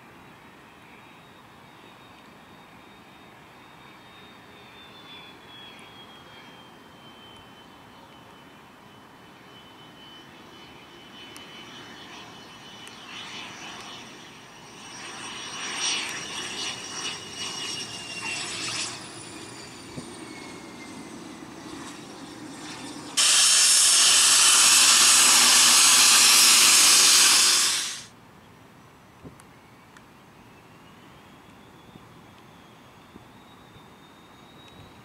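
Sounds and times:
close jet engine noise: 0:00.0 - 0:35.0
jet engines whining: 0:01.0 - 0:28.1.

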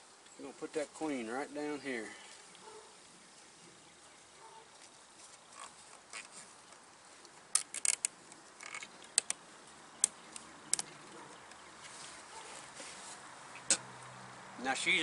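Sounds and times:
zip tie clicking: 0:05.6 - 0:06.8, 0:07.5 - 0:09.4.

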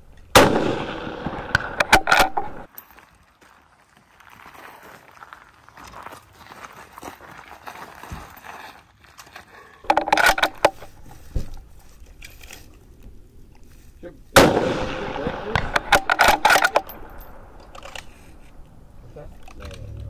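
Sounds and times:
rifle shot: 0:00.3 - 0:02.7, 0:14.4 - 0:17.6.

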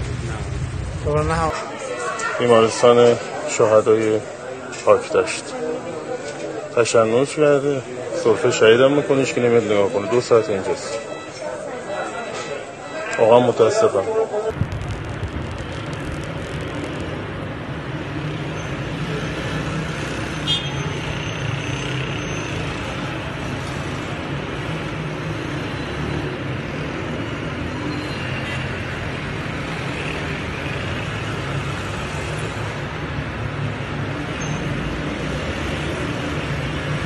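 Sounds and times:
street traffic: 0:00.0 - 0:37.0.

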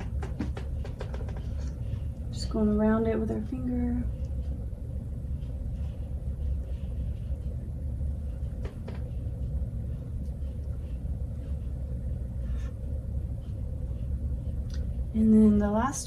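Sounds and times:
faint hum: 0:00.0 - 0:16.0
low rumble: 0:00.0 - 0:16.0.

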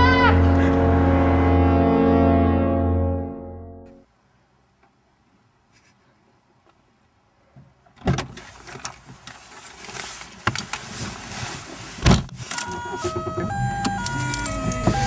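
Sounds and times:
rustling and bumps: 0:07.6 - 0:15.0
car door opening clunk: 0:12.0 - 0:15.0.

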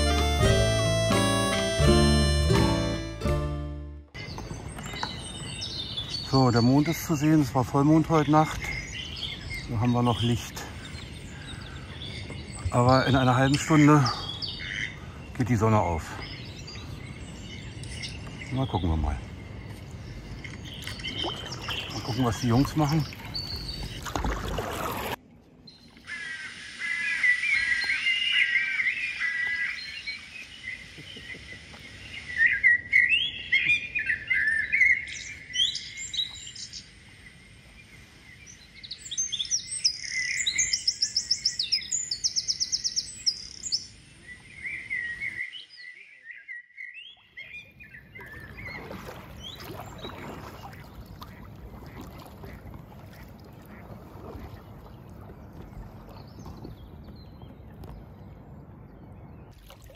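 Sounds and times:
kayak paddle splashing: 0:04.1 - 0:06.3, 0:19.2 - 0:32.6, 0:47.2 - 0:58.6, 0:59.5 - 0:59.9
songbirds singing: 0:04.1 - 0:59.9.

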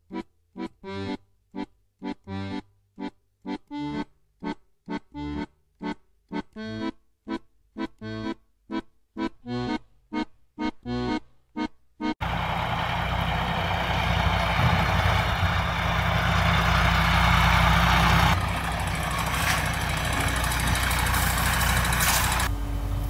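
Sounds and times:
diesel lorry engine at low speed: 0:12.2 - 0:23.0.

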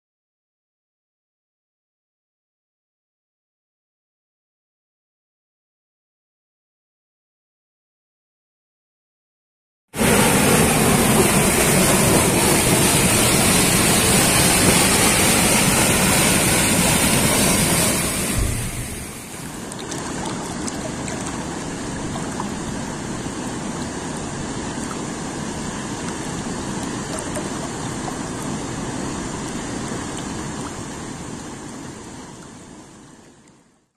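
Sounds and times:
waterfall rushing over rocks: 0:10.0 - 0:33.2.

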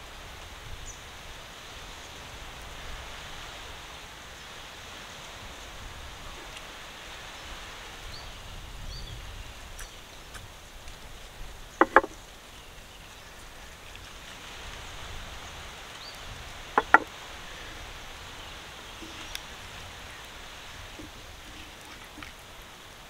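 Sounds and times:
steady outdoor hiss: 0:00.0 - 0:23.0
clay bowls knocking: 0:11.8 - 0:12.2, 0:16.8 - 0:17.1.

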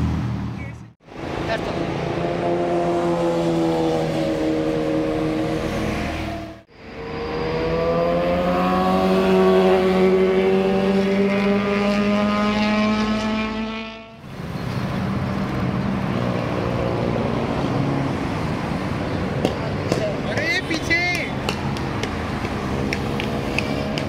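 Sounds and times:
engine accelerating: 0:01.2 - 0:14.2.

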